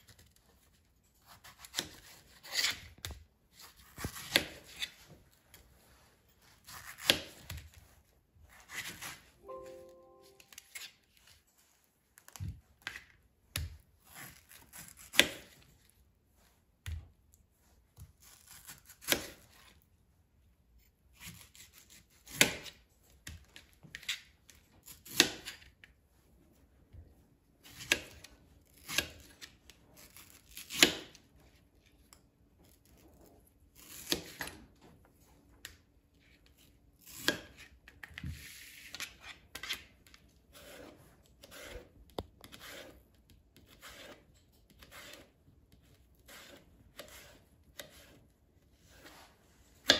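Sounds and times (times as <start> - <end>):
knife slicing scrape: 1.2 - 5.0, 8.5 - 9.3, 14.0 - 15.6, 38.4 - 49.9.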